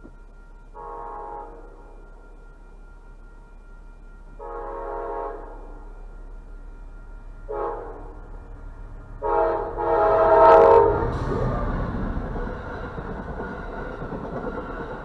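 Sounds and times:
train air horn blasts: 0.7s - 2.0s, 4.4s - 5.9s, 7.5s - 8.4s, 9.2s - 12.1s.

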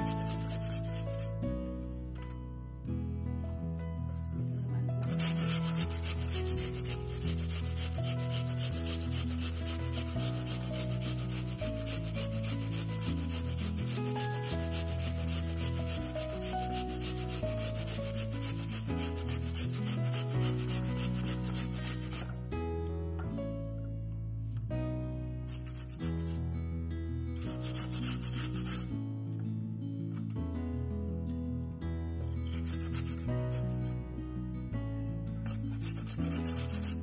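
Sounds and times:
rapid scraping strokes: 0.0s - 1.4s, 5.0s - 22.4s, 25.5s - 26.4s, 27.4s - 28.9s, 32.4s - 33.9s, 35.5s - 37.0s
soft background music: 0.0s - 37.0s.

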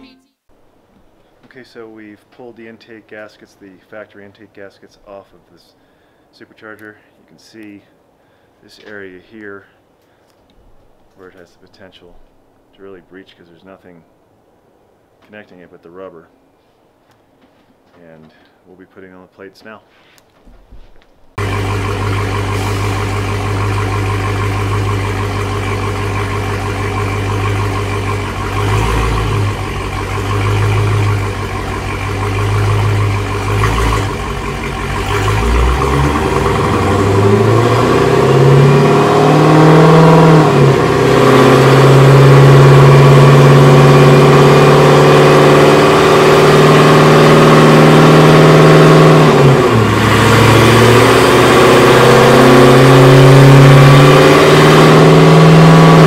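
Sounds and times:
car engine on a dyno: 21.4s - 56.0s.

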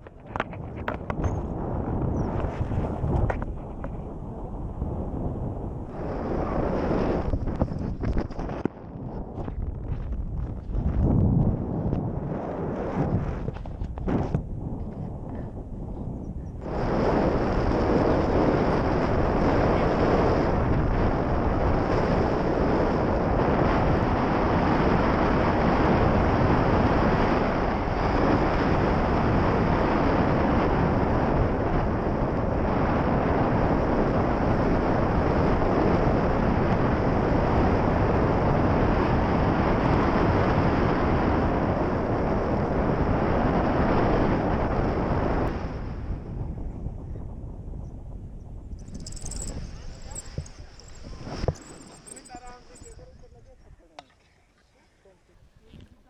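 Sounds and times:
wind rush on microphone: 0.0s - 53.9s.

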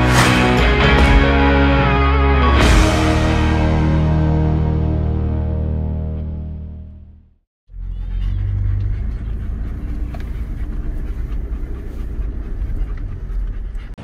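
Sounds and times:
engine rumble inside vehicle: 7.7s - 14.0s
dog panting: 7.8s - 14.0s.

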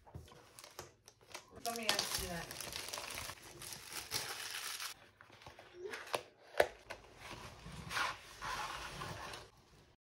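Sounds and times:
packaging rustling and crinkling: 0.2s - 5.5s.

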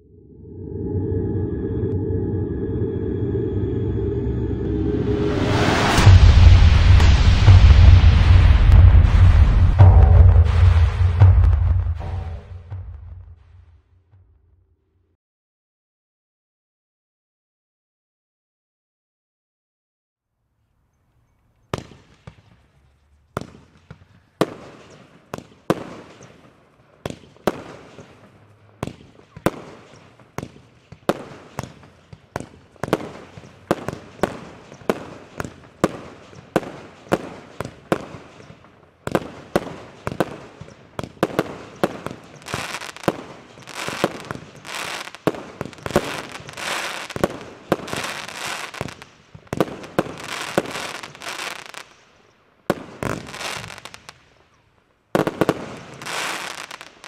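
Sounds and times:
firework crackling: 5.9s - 12.6s, 29.2s - 52.0s, 52.7s - 54.2s, 55.2s - 57.0s.

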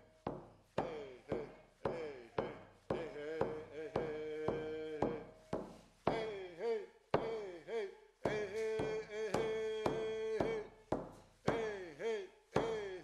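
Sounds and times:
person singing long notes: 0.8s - 5.3s, 6.1s - 10.7s.

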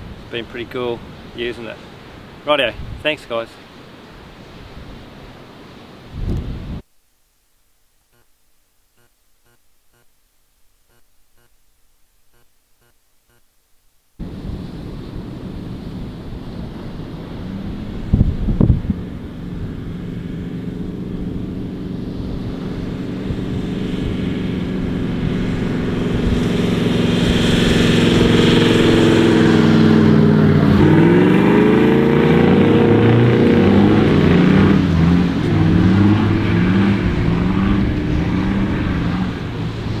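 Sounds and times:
four-wheel drives driving on sand: 14.2s - 40.0s.

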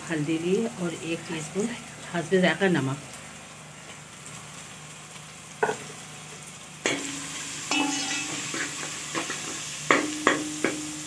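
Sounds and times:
food sizzling in oil: 0.0s - 11.0s
metal spoon scraping a pot: 7.7s - 9.6s.

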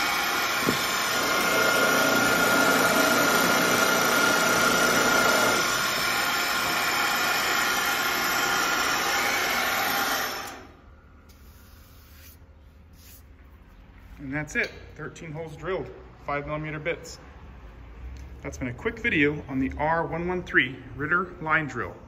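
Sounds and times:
drill bits drilling into panel: 0.0s - 10.7s
boring machine motor running: 0.0s - 10.8s.

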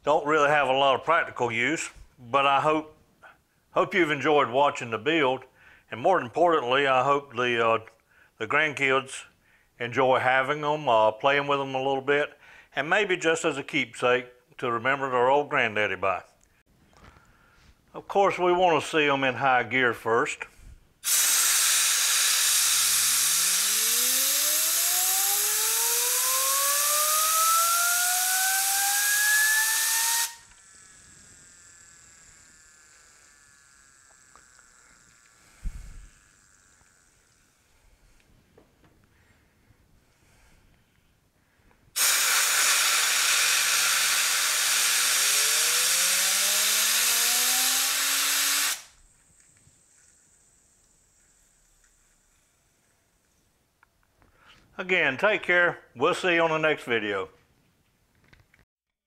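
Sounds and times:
compressed air hissing: 21.0s - 26.0s, 28.2s - 30.5s, 34.9s - 36.2s, 42.0s - 49.0s
fidget spinner whining: 21.0s - 38.2s, 42.0s - 52.6s.

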